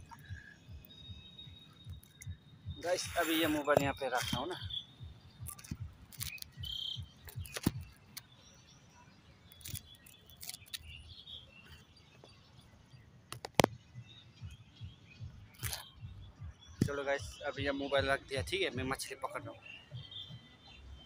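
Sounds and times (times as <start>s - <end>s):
phone handling noise: 5.4s - 8.0s.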